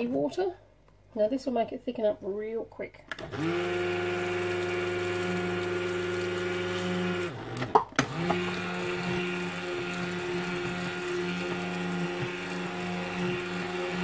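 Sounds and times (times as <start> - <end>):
stick blender running: 3.1 - 14.0.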